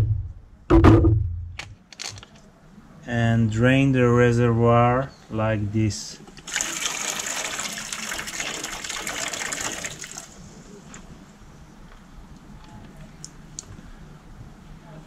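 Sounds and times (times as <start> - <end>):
liquid pouring from container: 6.5 - 10.3.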